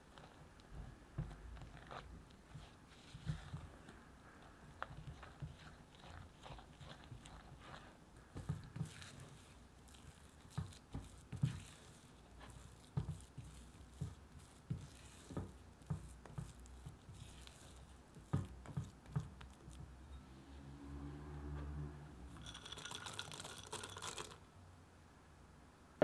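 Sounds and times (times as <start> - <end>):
spatula knocking cookie dough: 4.8 - 20.0
spatula scraping glass bowl: 4.8 - 20.2, 22.3 - 24.4.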